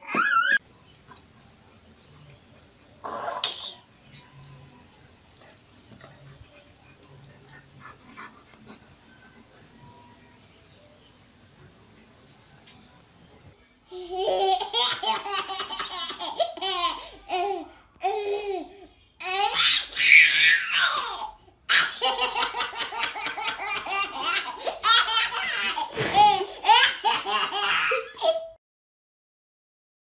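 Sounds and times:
toddler laughing: 14.1 - 28.6.

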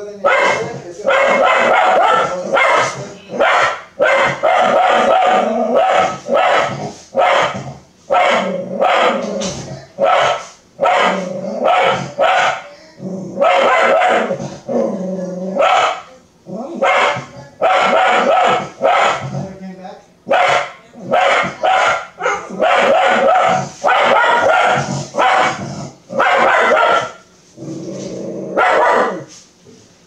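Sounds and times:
dog barking loudly: 0.2 - 9.3, 10.0 - 12.7, 13.4 - 14.5, 15.6 - 16.1, 16.8 - 19.4, 20.3 - 27.3, 28.6 - 29.3.

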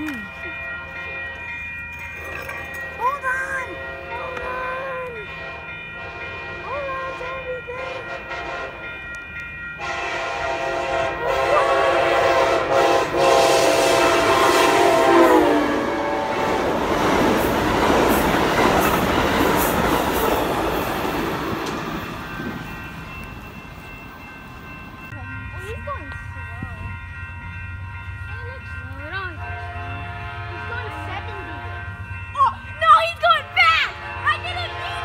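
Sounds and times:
crossing bells ringing: 0.0 - 35.0
rush and clatter of train cars: 0.0 - 35.0
train horn: 5.2 - 9.0, 9.8 - 16.8, 29.4 - 32.0, 33.3 - 35.0.

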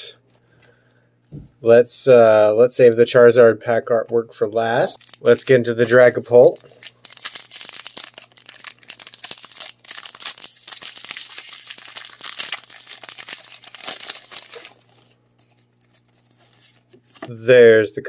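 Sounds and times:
foil wrapper tearing and crinkling: 5.0 - 17.2.

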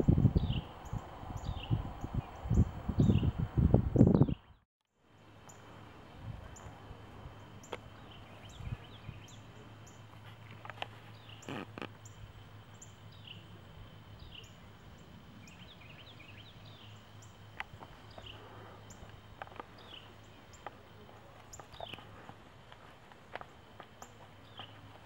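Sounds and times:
bird chirping: 0.4 - 3.4, 7.4 - 13.5, 14.1 - 22.2, 24.0 - 25.0
low steady hum: 5.0 - 25.0.

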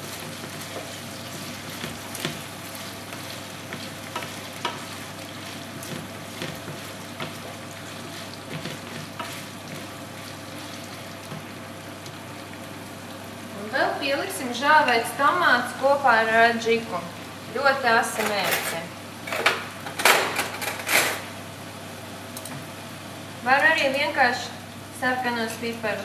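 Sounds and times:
spatulas scraping and knocking pan: 0.0 - 9.9
meat sizzling in a pan: 0.0 - 13.5.

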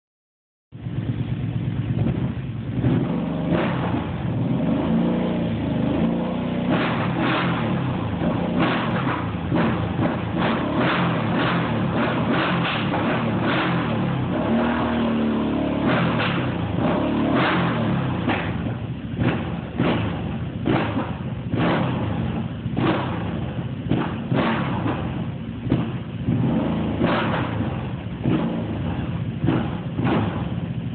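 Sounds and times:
atv engine revving: 1.0 - 30.9.

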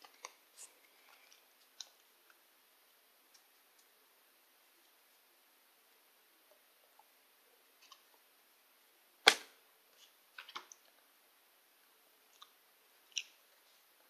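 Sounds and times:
quiet clicks and taps: 3.2 - 4.0.

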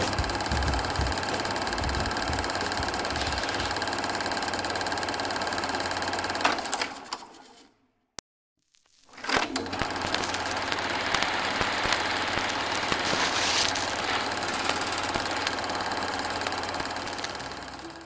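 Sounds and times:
machine running with low hum: 0.0 - 6.3, 9.4 - 18.0
irregular clicking clatter: 9.8 - 17.8.

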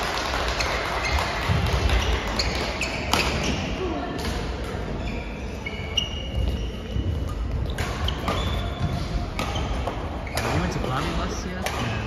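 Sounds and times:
sports hall background noise: 0.0 - 12.0
shoes squeaking on court floor: 0.5 - 12.0
racket hitting shuttlecock: 1.0 - 4.9, 7.2 - 12.0.

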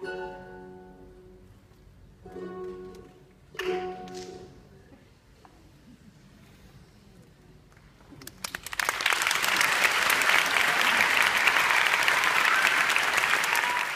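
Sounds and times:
audience applause: 8.2 - 13.9.

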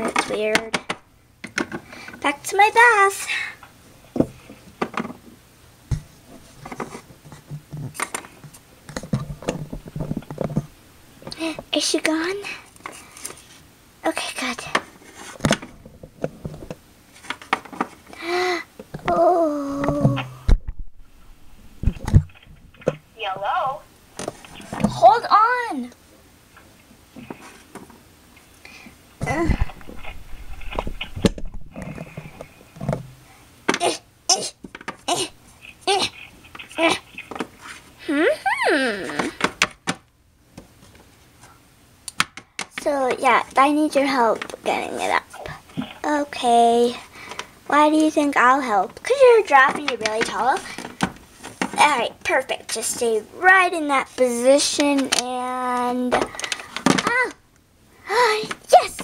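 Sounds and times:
plastic toys handled and set down: 24.2 - 25.1, 29.2 - 33.8, 49.6 - 51.8, 54.6 - 57.3.

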